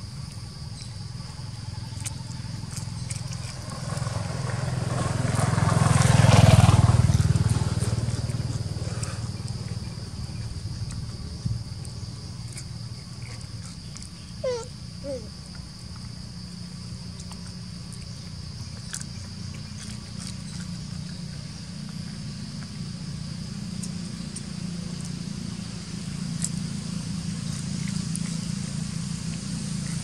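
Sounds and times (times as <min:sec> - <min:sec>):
vehicle passing by: 0:01.7 - 0:12.6.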